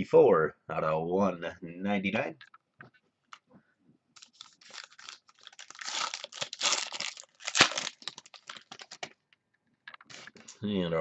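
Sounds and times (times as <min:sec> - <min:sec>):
plastic wrapping crumpled: 0:04.2 - 0:09.2
sharp plastic crackle: 0:04.2 - 0:09.2.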